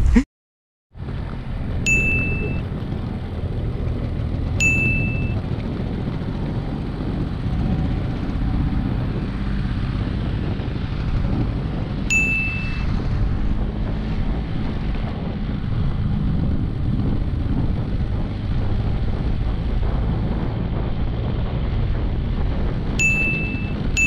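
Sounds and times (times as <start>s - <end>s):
scooter engine running: 1.0s - 24.0s
wind buffeting microphone: 1.0s - 24.0s
short bright ding: 1.9s - 2.6s, 4.6s - 5.4s, 12.1s - 12.9s, 23.0s - 23.8s.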